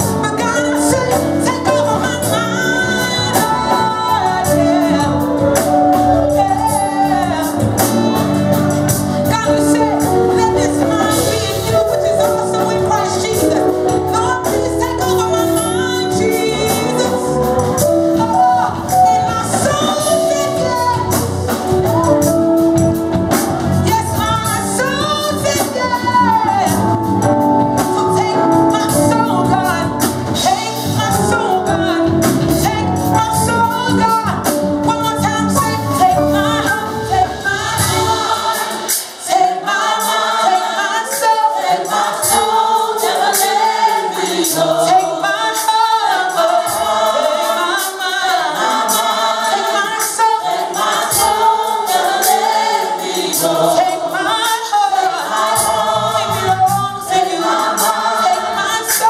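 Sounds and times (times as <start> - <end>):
band with heavy bass: 0.0 - 39.0
choir singing: 2.5 - 22.0, 36.2 - 59.0.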